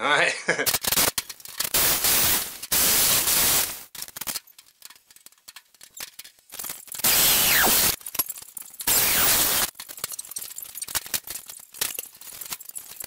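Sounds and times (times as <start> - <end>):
power tool hissing on metal: 7.0 - 8.0, 8.9 - 9.7.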